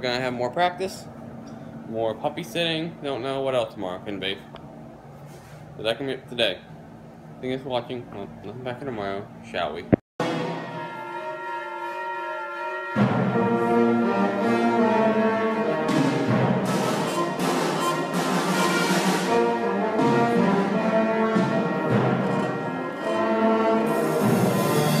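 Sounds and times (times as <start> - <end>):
orchestral band music with brass: 10.2 - 25.0.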